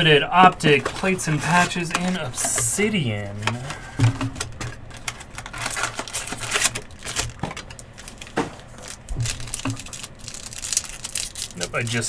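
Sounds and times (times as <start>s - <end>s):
wrapper crinkling: 4.5s - 12.0s.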